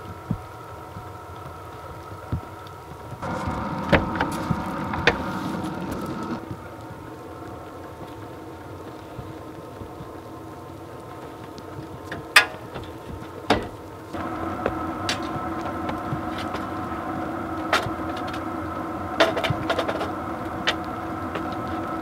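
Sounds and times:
heater humming: 1.6s - 22.0s.

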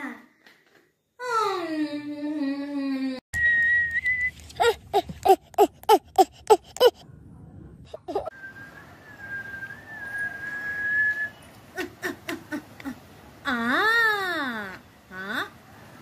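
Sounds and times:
steady whistle: 3.4s - 4.4s, 8.4s - 11.5s.

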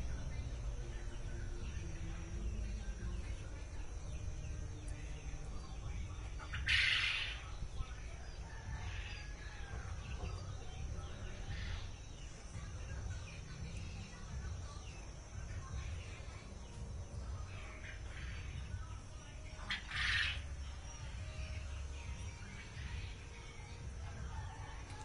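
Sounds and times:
low rumbling background noise: 0.0s - 25.0s
faint bird calls: 6.2s - 7.6s, 19.6s - 20.8s.

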